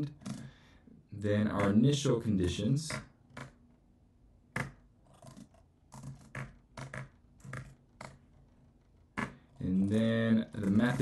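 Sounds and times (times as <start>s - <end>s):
keyboard typing: 4.6s - 11.0s.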